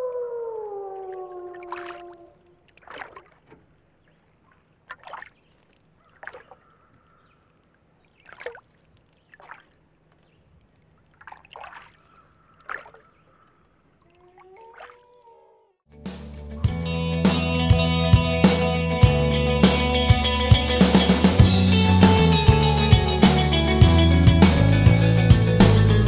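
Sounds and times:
water splashing and trickling: 0.0s - 15.6s.

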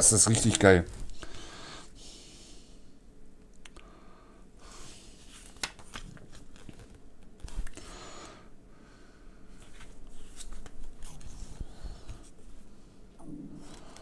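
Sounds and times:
paper pages rustling: 0.1s - 1.2s, 5.2s - 7.8s, 9.6s - 12.3s
page turning: 0.2s - 1.2s, 5.3s - 7.8s, 9.6s - 12.2s.

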